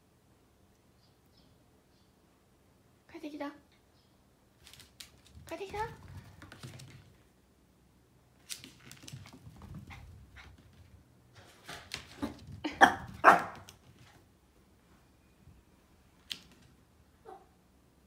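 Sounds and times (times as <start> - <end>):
small dog barking: 12.8 - 13.7, 17.2 - 17.6.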